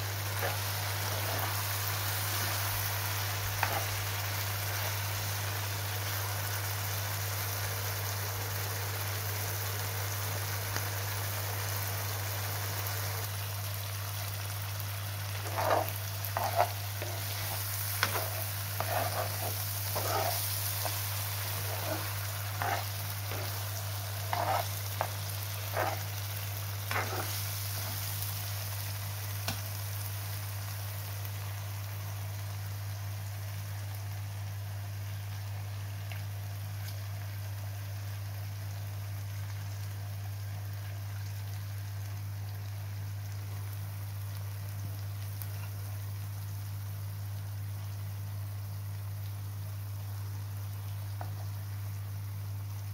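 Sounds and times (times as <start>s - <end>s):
food sizzling in a frying pan: 0.0s - 52.9s
metal spoon scraping a pan: 3.6s - 3.9s, 15.4s - 26.1s, 26.9s - 28.0s
steady low hum: 13.0s - 28.9s.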